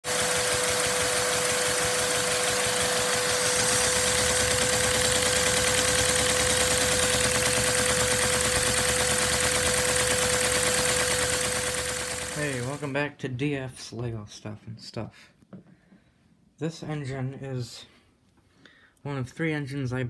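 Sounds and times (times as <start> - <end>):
vacuum cleaner rush and whine: 0.0 - 12.8.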